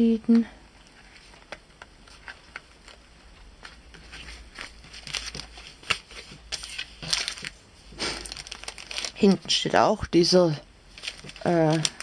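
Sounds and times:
plastic bag crinkling: 1.2s - 9.7s, 10.9s - 12.0s.

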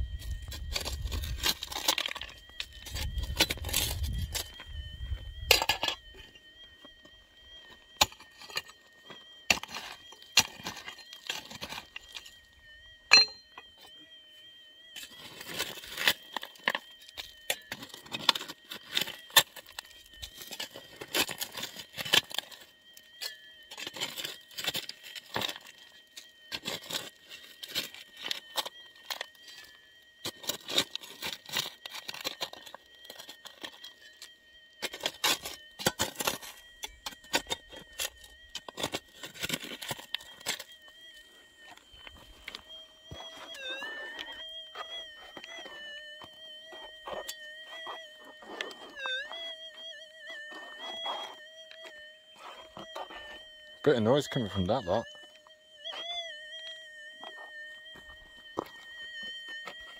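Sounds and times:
shovel digging stony soil: 9.5s - 12.2s
blade clinking against stones: 13.1s - 13.5s.

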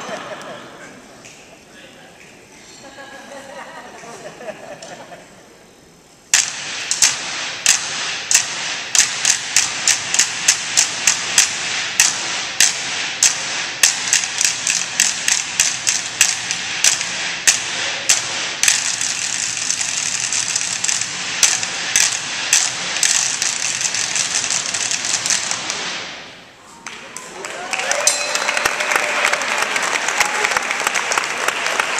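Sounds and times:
sharp percussion strikes: 6.3s - 26.4s, 28.0s - 29.3s.

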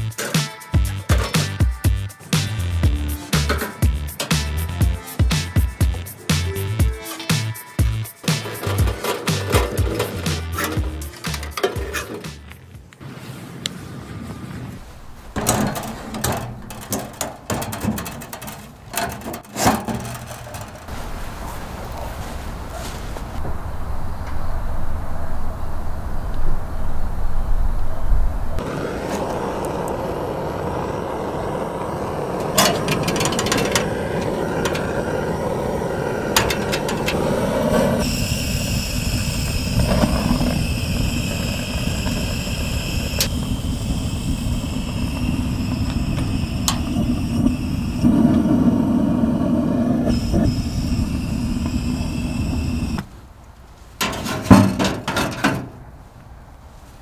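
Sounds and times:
sharp metallic clicks and knocks: 15.4s - 20.9s
butane torch flame jetting: 28.6s - 53.0s.

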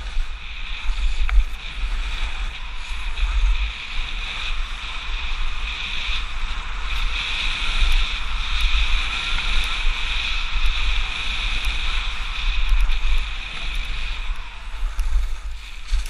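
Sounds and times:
skis hissing over snow: 0.0s - 16.0s
wind buffeting microphone: 0.0s - 16.0s.

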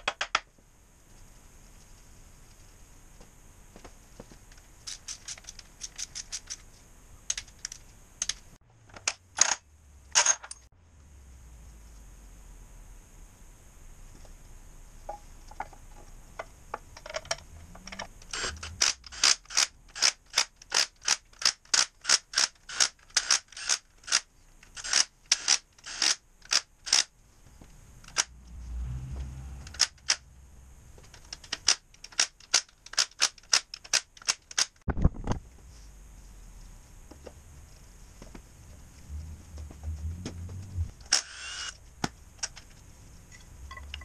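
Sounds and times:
low hum: 8.0s - 19.2s, 27.2s - 31.3s, 34.9s - 44.0s.

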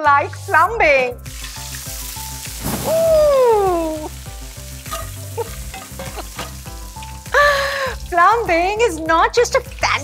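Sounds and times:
food sizzling in a frying pan: 0.0s - 10.0s
liquid poured into pan: 1.2s - 7.4s.

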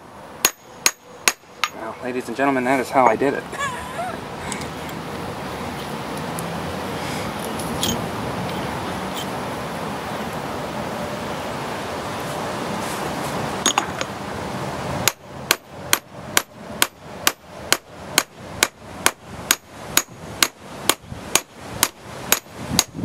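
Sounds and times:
steady background noise: 0.0s - 23.0s
hammer blows on metal: 15.0s - 23.0s.

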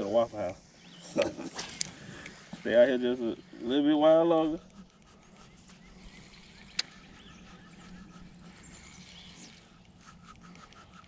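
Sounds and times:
low steady hum: 0.0s - 11.0s
fishing reel ticking: 3.7s - 11.0s
sharp click: 6.7s - 7.0s.

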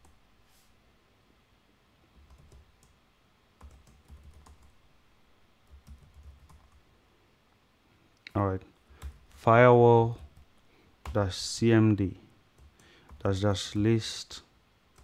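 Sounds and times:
faint keyboard typing: 0.0s - 0.2s, 2.0s - 3.0s, 3.6s - 4.8s, 5.6s - 6.9s, 8.2s - 11.5s, 12.5s - 13.8s.

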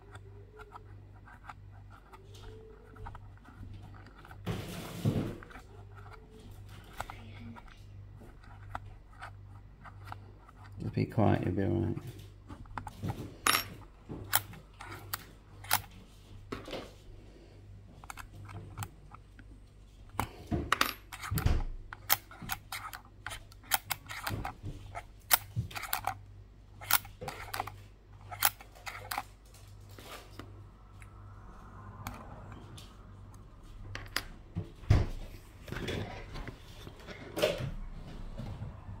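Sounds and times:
metal parts and screws clicking: 0.0s - 4.5s, 12.6s - 15.9s, 20.1s - 26.2s, 26.8s - 29.3s
low steady hum: 0.0s - 39.0s.

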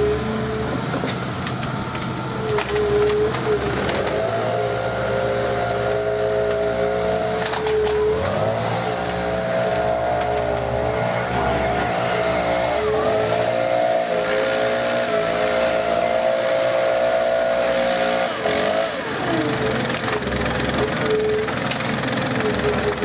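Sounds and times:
diesel excavator engine: 0.0s - 23.0s
leaf blower engine: 0.0s - 23.0s.

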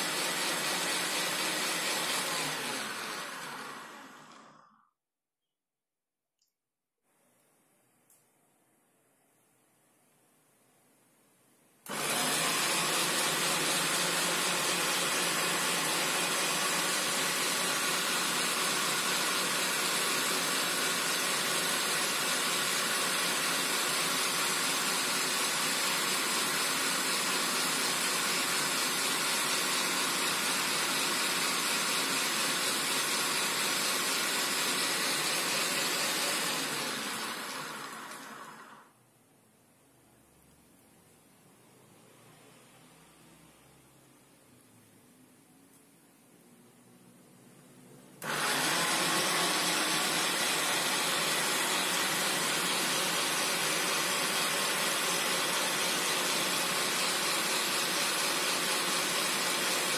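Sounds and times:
citrus juicer motor whirring: 0.0s - 4.9s, 11.9s - 38.9s, 48.2s - 59.9s.

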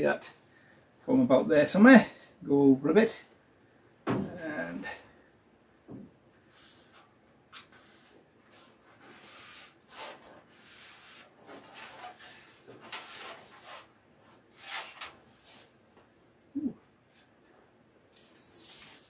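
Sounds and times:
cloth tape brushing car panel: 7.9s - 15.7s.

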